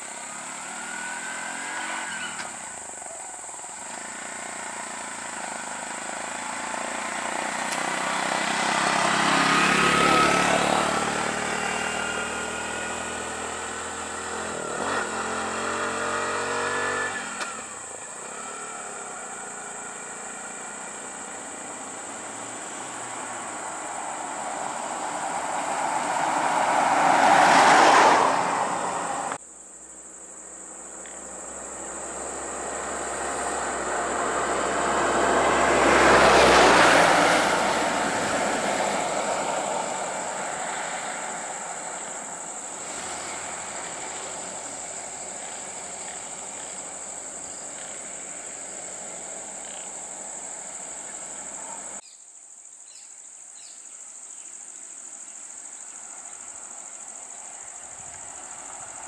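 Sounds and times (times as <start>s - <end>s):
vehicles driving past: 0.0s - 52.0s, 55.6s - 59.0s
high-pitched insect drone: 38.1s - 59.0s.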